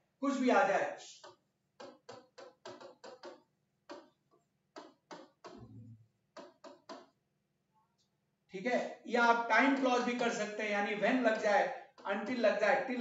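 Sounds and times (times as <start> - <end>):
stylus tapping on touchscreen: 1.1 - 7.2.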